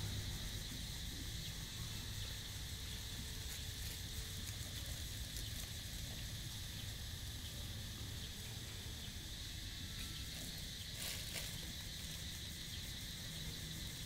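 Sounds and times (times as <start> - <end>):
high insect drone: 0.0 - 14.0.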